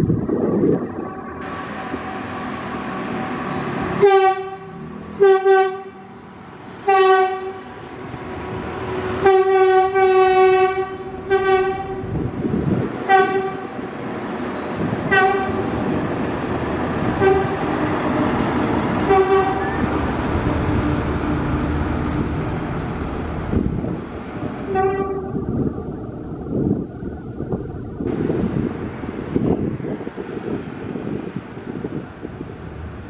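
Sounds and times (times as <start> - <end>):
train running rumble: 0.0 - 33.0
train horn tooting: 3.4 - 6.2, 6.8 - 7.7, 9.2 - 12.1, 13.1 - 13.8, 15.1 - 15.7, 17.2 - 17.7, 19.0 - 19.8, 24.7 - 25.4.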